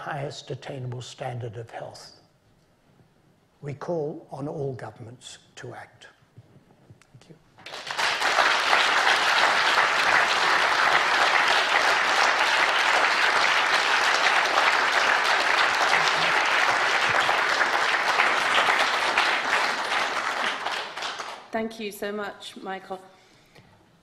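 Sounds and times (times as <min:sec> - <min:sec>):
audience applauding: 0:07.6 - 0:21.5.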